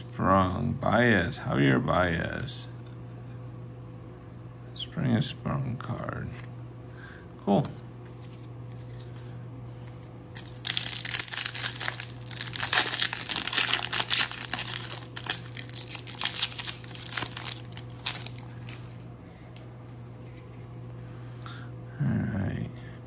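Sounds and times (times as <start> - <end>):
steady low hum: 0.0 - 23.0
foil wrapper tearing and crinkling: 9.8 - 19.0.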